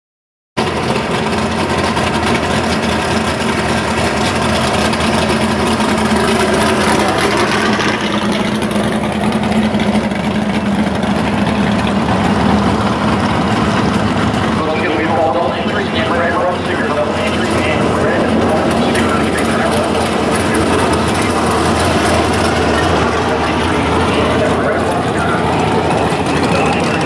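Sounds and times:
race car engines idling: 0:00.6 - 0:27.0.

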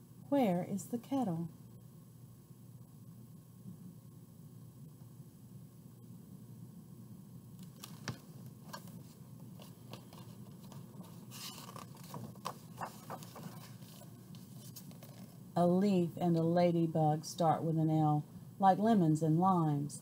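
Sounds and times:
low room hum: 0:00.0 - 0:20.0
book pages rustling: 0:07.6 - 0:15.4.

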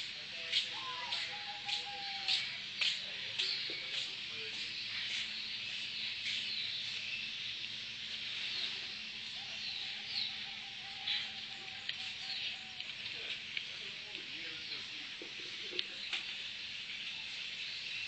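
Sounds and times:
bird chirps: 0:00.5 - 0:07.6, 0:08.4 - 0:13.4.

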